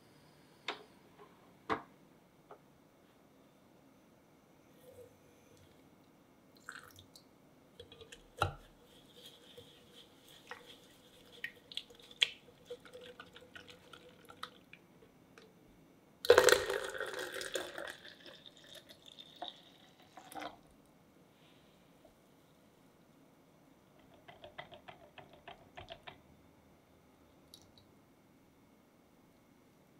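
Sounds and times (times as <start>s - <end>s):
liquid pouring and splashing: 6.6s - 7.1s, 10.4s - 14.8s, 16.3s - 20.6s.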